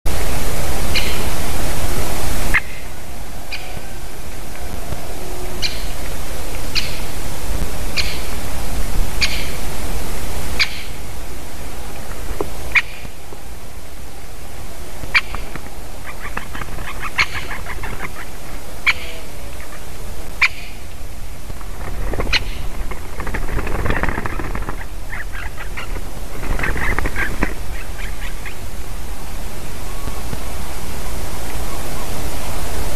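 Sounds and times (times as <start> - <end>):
background hiss: 0.1 - 32.9
woodpeckers calling: 0.9 - 1.2, 2.5 - 4.8, 5.4 - 7.2, 7.9 - 8.4, 9.2 - 9.6, 10.6 - 11.0, 12.7 - 13.2, 15.1 - 28.9.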